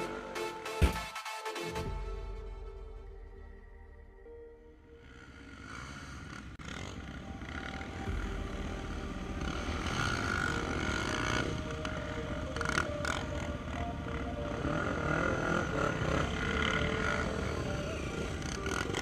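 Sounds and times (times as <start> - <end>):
quad bike engines idling: 5.0 - 19.0
quad bike engines revving: 5.0 - 19.0.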